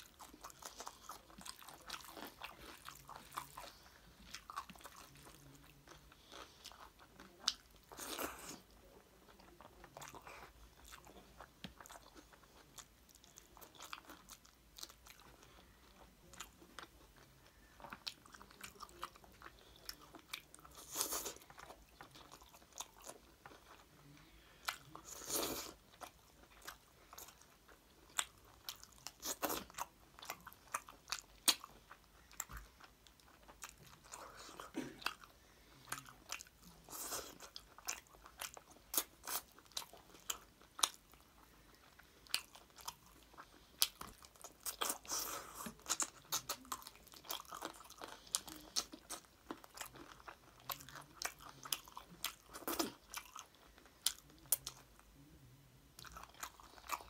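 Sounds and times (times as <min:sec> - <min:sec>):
person chewing food: 0:00.0 - 0:55.2, 0:56.0 - 0:57.0.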